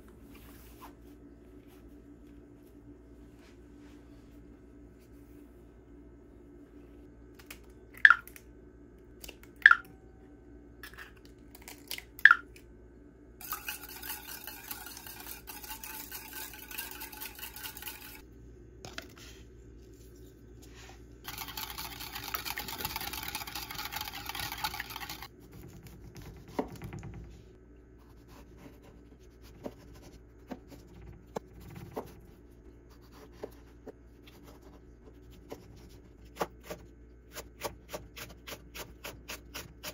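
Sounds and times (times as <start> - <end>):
whisk beating eggs in a bowl: 13.4 - 18.2, 21.2 - 27.2.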